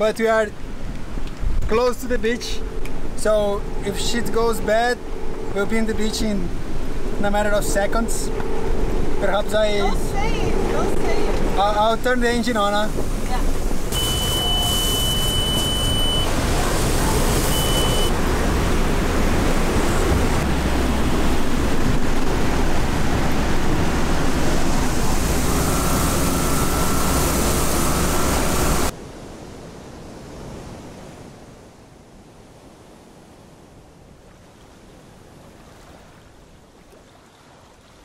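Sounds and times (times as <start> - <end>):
strong wind blowing: 0.6 - 34.0
high alarm beep: 13.9 - 16.5, 17.2 - 18.2, 25.4 - 28.9.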